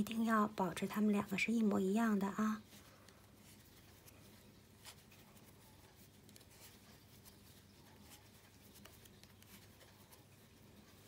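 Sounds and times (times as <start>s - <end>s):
knitting needles clicking: 2.7s - 11.0s.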